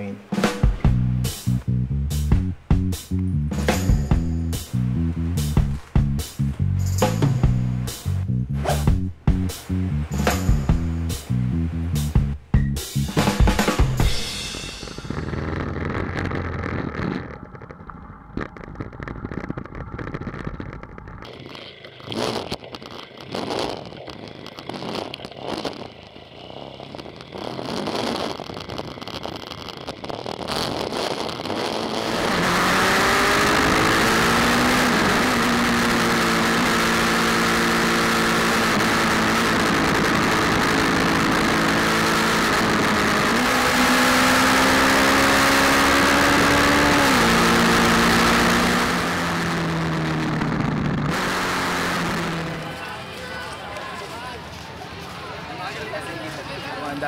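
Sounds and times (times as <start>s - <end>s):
wind and road noise: 0.0s - 57.0s
motorcycle engine revving: 30.4s - 53.4s.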